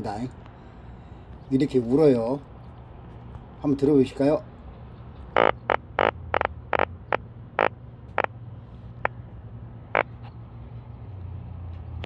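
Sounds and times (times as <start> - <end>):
fish croaking: 5.3 - 8.3.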